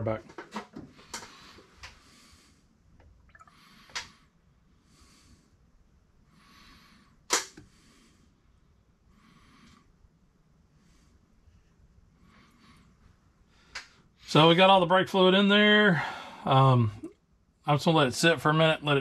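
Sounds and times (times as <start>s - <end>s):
liquid pouring from bottle: 3.2s - 3.6s.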